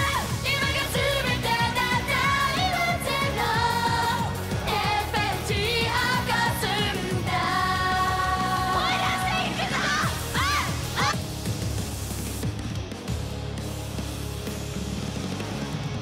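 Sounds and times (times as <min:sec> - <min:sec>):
pop-rock song with singing: 0:00.0 - 0:11.2
steady drum beat: 0:00.0 - 0:16.0.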